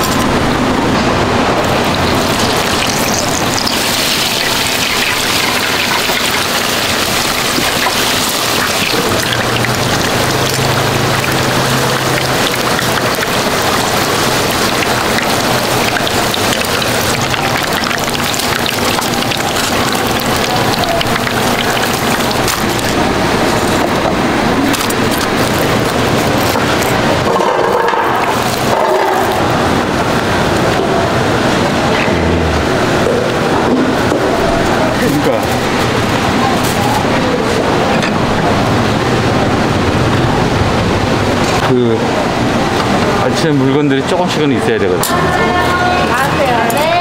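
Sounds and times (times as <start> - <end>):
dumplings sizzling in hot oil: 1.7 - 24.0.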